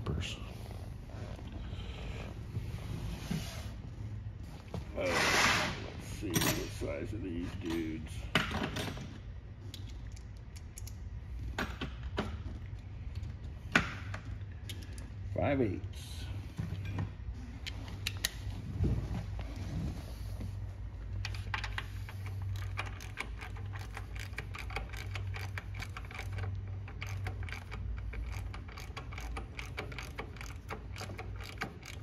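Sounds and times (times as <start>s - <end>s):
socket ratchet clicking: 21.4s - 32.0s.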